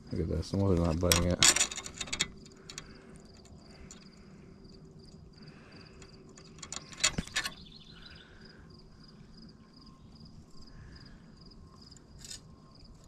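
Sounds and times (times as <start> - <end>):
fishing reel clicks and rattles: 1.0 - 4.1
insect chirping: 1.6 - 13.0.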